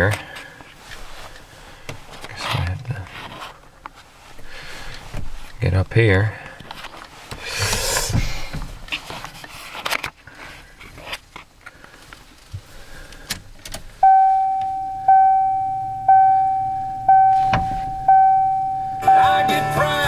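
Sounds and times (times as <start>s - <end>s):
dashboard warning chime: 14.0s - 20.0s.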